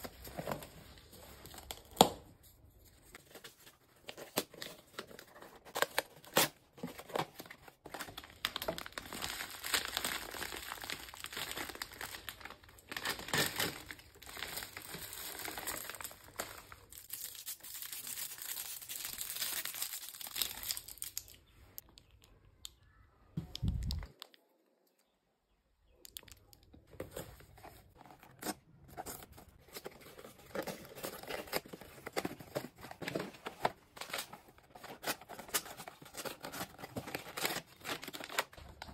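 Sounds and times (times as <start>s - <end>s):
paper and foil wrappers crinkling: 2.9s - 21.5s, 27.0s - 38.9s.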